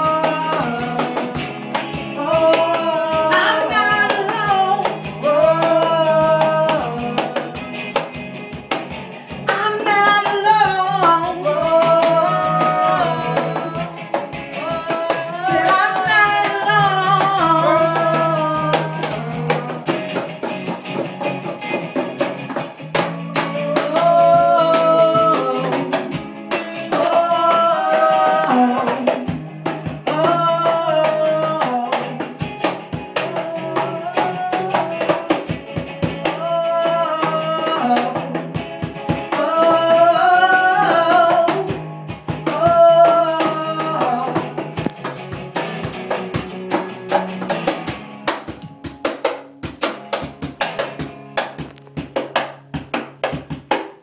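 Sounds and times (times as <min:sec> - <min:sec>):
person singing: 0:00.0 - 0:08.1, 0:09.4 - 0:20.5, 0:22.9 - 0:46.4
box drum beat: 0:00.0 - 0:54.0
electric guitar: 0:00.0 - 0:54.0.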